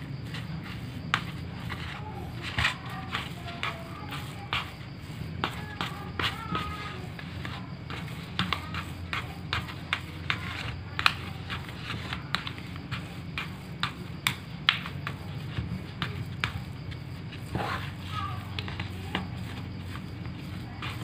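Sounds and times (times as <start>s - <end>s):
hands kneading mash in bowl: 0.0s - 21.0s
steady low hum: 0.0s - 21.0s.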